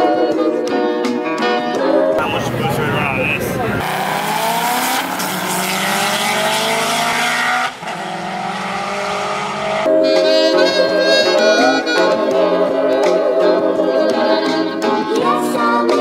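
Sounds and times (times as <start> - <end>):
background music: 0.0 - 16.0
race car engines accelerating: 2.2 - 12.1.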